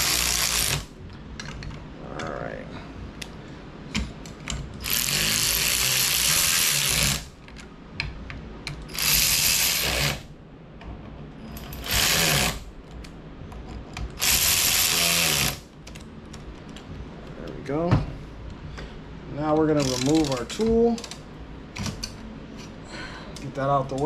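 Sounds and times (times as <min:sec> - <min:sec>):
power tool bursts: 0:00.0 - 0:00.9, 0:08.9 - 0:10.2, 0:11.8 - 0:12.6, 0:14.2 - 0:15.6.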